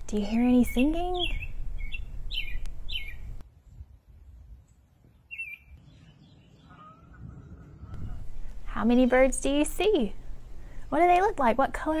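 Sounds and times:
low outdoor rumble: 0.0 - 3.4, 5.8 - 12.0
songbird chirping: 0.1 - 3.8, 4.6 - 8.2
faint whistled bird notes: 0.7 - 3.3, 5.1 - 8.2.

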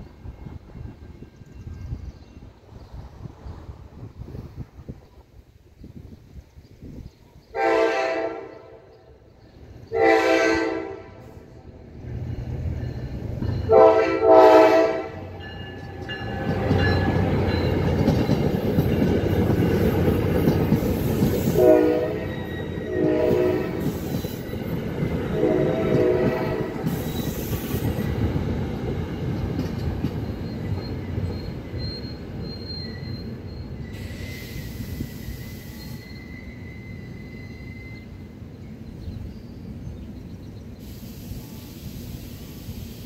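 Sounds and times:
train rumbling past: 0.0 - 43.0
train horn blasts: 7.5 - 9.0, 9.9 - 11.5, 13.6 - 15.5, 21.4 - 24.1, 25.3 - 26.9.

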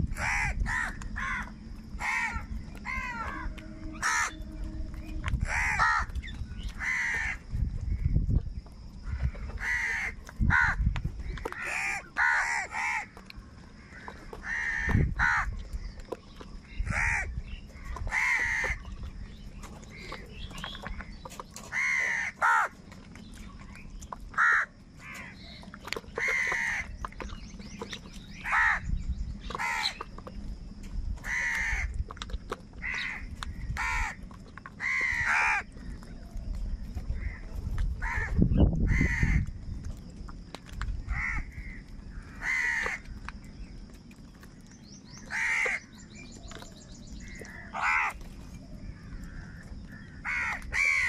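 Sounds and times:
crows cawing: 0.1 - 7.4, 9.0 - 10.8, 11.4 - 13.2, 13.8 - 15.5, 16.8 - 17.4, 18.1 - 18.8, 21.7 - 22.8, 24.4 - 25.4, 26.2 - 26.9, 28.4 - 28.8, 29.6 - 30.0, 31.2 - 31.9, 32.8 - 34.2, 34.8 - 35.7, 38.0 - 39.4, 41.1 - 43.2, 45.3 - 45.9, 47.2 - 48.2, 49.0 - 51.0.

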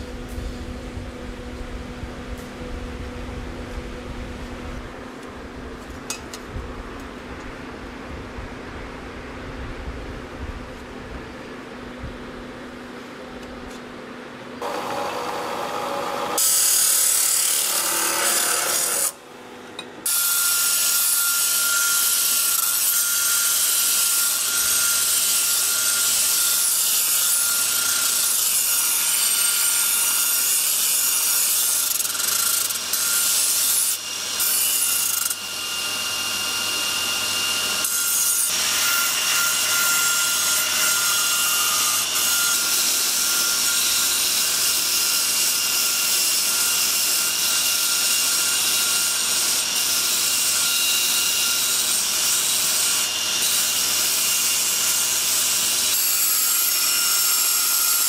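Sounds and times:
belt grinder grinding steel: 14.6 - 19.2, 20.0 - 36.4.

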